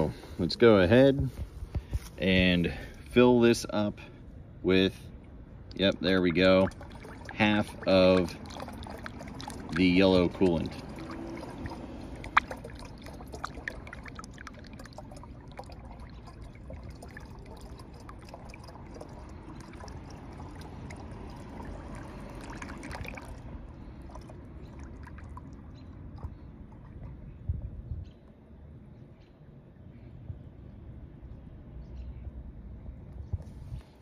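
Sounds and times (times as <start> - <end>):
liquid pouring through funnel: 5.7 - 27.2.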